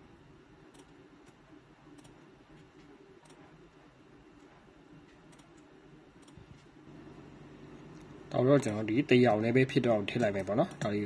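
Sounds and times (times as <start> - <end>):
low room hum: 0.0 - 11.0
computer mouse clicks: 0.7 - 3.6, 5.1 - 6.7.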